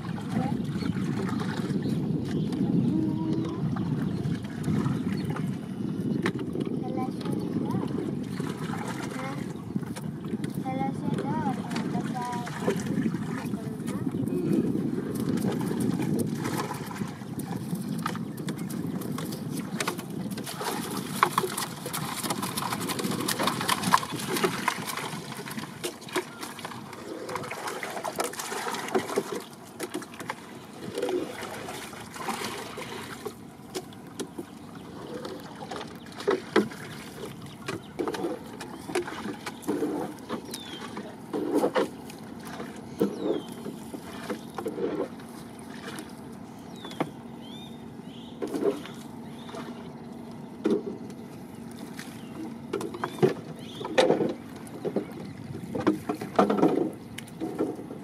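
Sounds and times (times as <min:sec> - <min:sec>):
water dripping and splashing: 0:06.6 - 0:47.0
knocks on wooden boat: 0:52.7 - 0:57.8.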